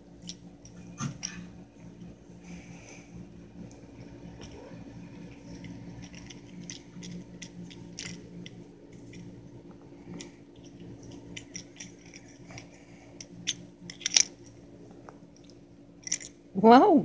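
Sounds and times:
faint hum: 0.0s - 17.0s.

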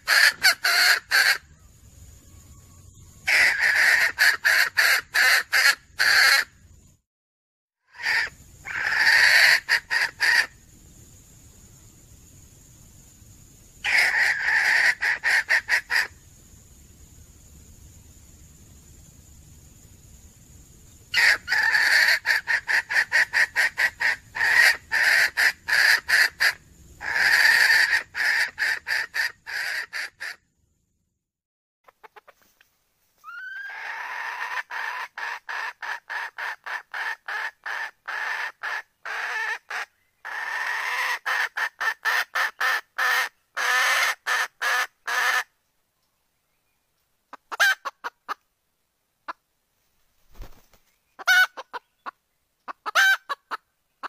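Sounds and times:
hen clucking: 0.0s - 1.6s, 3.3s - 6.5s, 13.8s - 16.1s, 21.2s - 30.4s, 31.9s - 32.6s, 33.2s - 45.5s, 47.3s - 48.4s, 51.2s - 53.6s.

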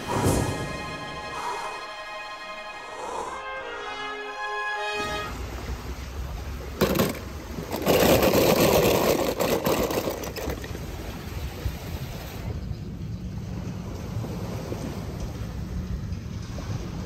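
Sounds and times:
clicking clatter: 6.8s - 10.8s.

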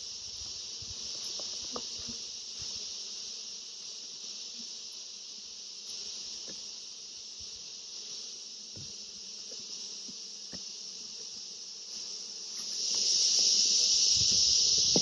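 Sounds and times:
insect chorus drone: 0.0s - 15.0s
faint knocks of hive box: 8.7s - 9.0s, 10.0s - 10.7s, 14.3s - 15.0s.

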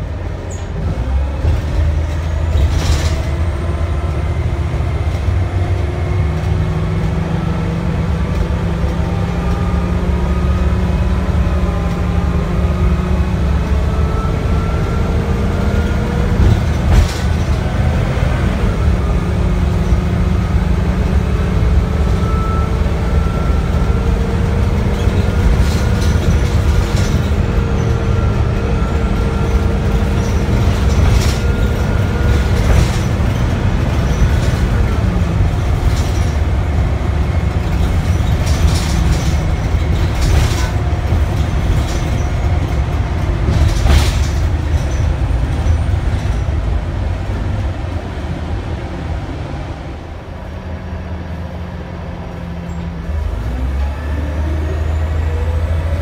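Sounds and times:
bus drivetrain drone with whine: 0.0s - 56.0s
body rattles and knocks: 16.1s - 17.9s, 29.1s - 46.5s.

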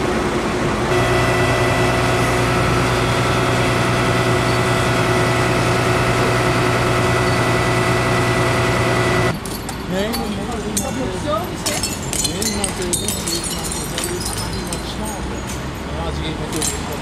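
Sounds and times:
fire truck engine idling: 0.0s - 9.3s.

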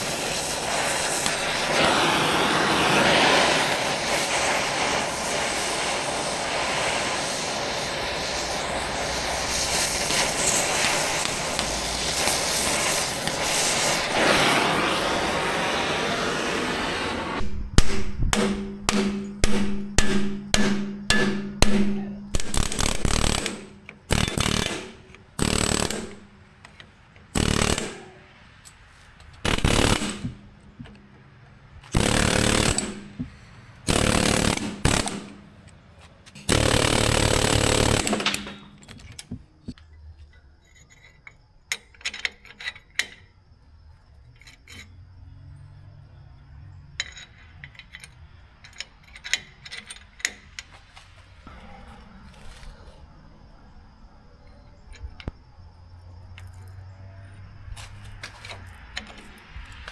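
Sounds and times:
power tool bursts on bolts: 0.0s - 15.1s, 22.4s - 26.7s, 27.3s - 28.0s, 29.4s - 30.4s, 31.8s - 35.4s, 36.4s - 39.3s.

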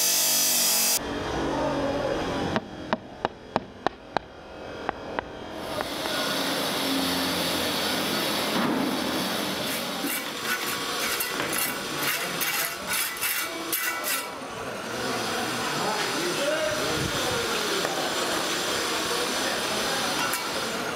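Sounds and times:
hand saw cutting wood: 9.6s - 14.4s.

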